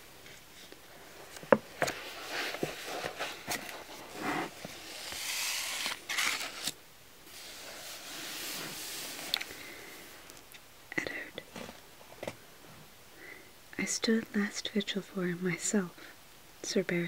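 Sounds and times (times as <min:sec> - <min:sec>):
page turning: 0:01.3 - 0:09.5
paper pages rustling: 0:01.3 - 0:09.5.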